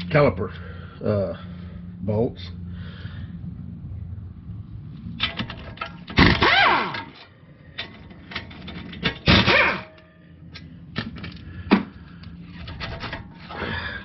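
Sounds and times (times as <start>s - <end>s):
cordless impact wrench running: 6.1s - 7.2s, 8.7s - 10.0s.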